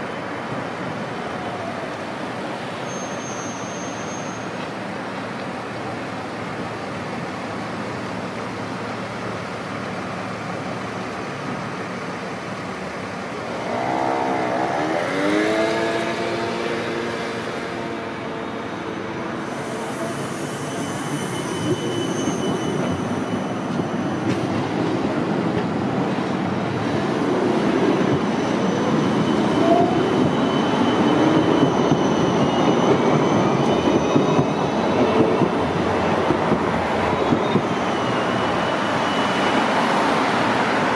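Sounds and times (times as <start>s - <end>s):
road traffic: 0.0s - 22.0s
electric tram passing: 4.0s - 40.9s.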